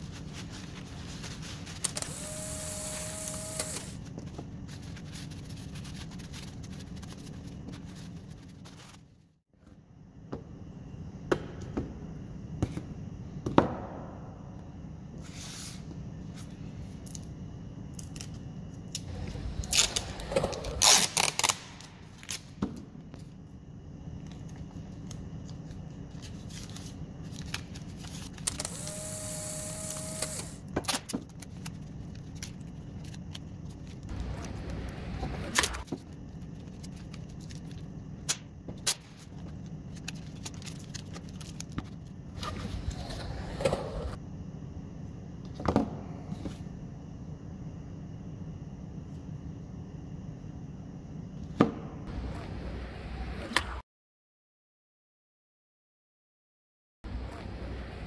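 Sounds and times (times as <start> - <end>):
steady low hum: 0.0 - 53.6, 57.1 - 58.0
tape screeching unroll: 19.6 - 21.8
masking tape ripping: 20.8 - 21.7.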